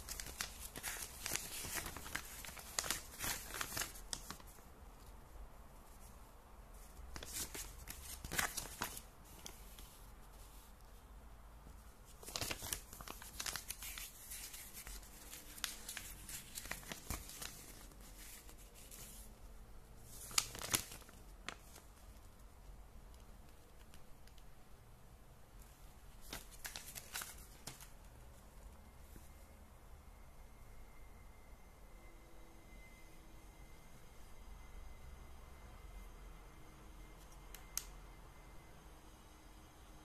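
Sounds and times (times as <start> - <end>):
paper pages rustling: 0.0 - 5.1, 6.8 - 10.8, 12.0 - 19.3, 20.1 - 22.3, 26.2 - 28.0.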